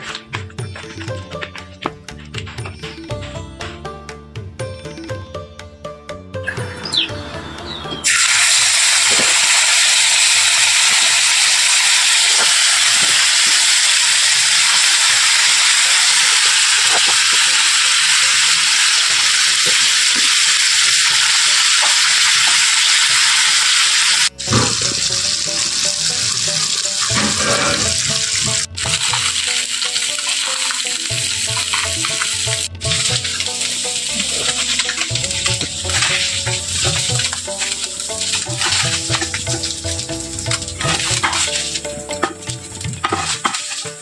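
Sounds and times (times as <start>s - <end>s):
fish sizzling in hot oil: 8.0s - 44.0s.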